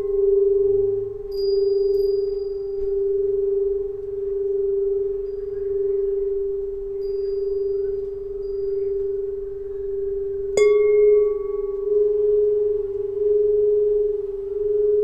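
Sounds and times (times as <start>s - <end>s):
tuning pipes ringing: 0.0s - 15.0s.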